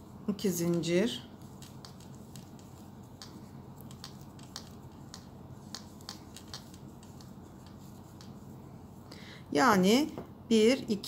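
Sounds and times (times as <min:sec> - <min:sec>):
crochet hook clicking on yarn: 0:00.6 - 0:08.4.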